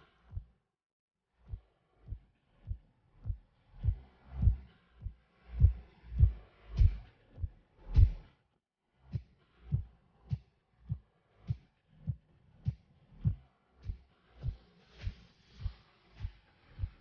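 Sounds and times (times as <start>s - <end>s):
low thudding heartbeat beat: 0.3s - 0.5s, 1.5s - 8.2s, 9.1s - 14.6s.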